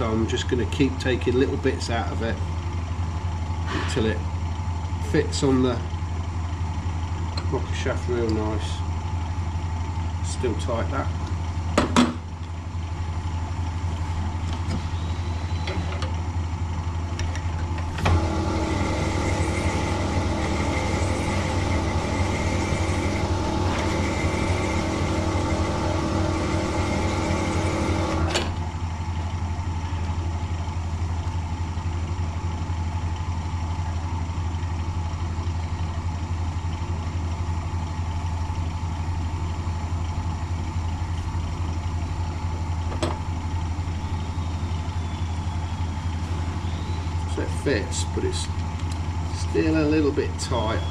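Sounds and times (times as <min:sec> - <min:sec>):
machine motor running: 0:04.9 - 0:50.9
grinding whine of honing stone: 0:18.0 - 0:28.3, 0:43.6 - 0:47.9.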